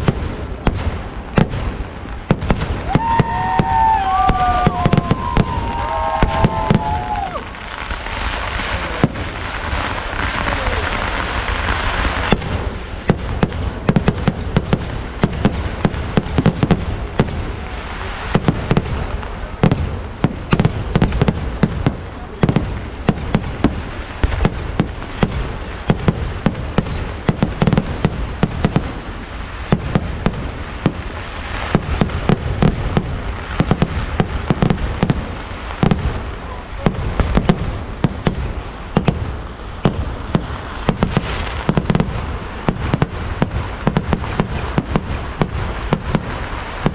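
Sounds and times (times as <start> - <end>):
fireworks bangs and cracks: 0.0 - 46.9.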